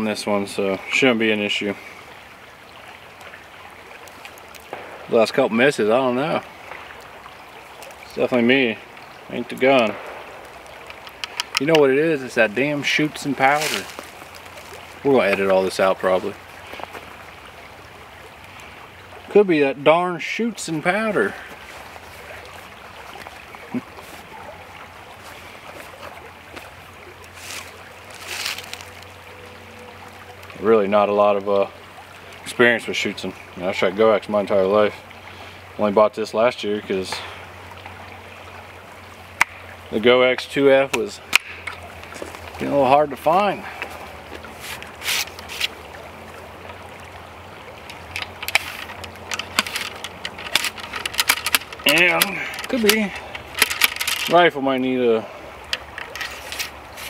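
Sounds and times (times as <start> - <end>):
creek running: 0.0 - 57.0
light metallic clicks and taps: 10.8 - 11.9
bag rustling: 27.4 - 29.0, 48.1 - 54.3
ramrod scraping in rifle bore: 47.9 - 54.3, 55.8 - 57.0.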